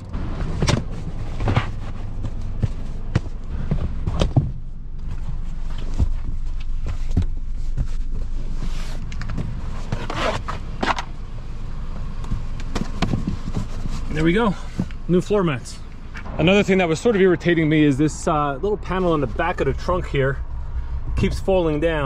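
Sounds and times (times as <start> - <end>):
car floor mats being handled: 0.4 - 11.2, 12.0 - 15.3
low rumble: 15.7 - 22.0.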